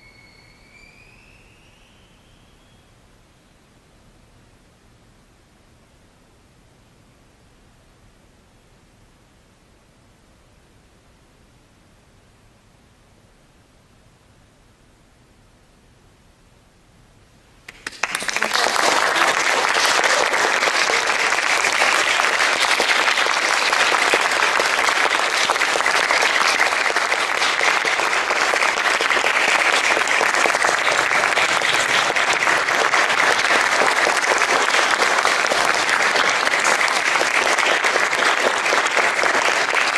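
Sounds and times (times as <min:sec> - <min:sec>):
audience applauding: 0:17.7 - 0:39.9.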